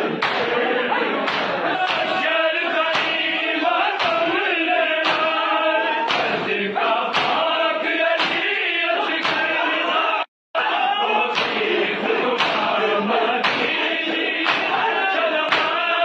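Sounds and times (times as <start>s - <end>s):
men chanting in unison: 0.0s - 16.0s
chest-beating slaps: 0.1s - 0.6s, 1.2s - 2.2s, 2.9s - 3.4s, 4.0s - 4.4s, 5.0s - 5.4s, 6.0s - 7.6s, 8.2s - 8.5s, 9.1s - 9.6s, 11.3s - 11.7s, 12.4s - 12.8s, 13.4s - 13.8s, 14.4s - 14.8s, 15.5s - 15.8s.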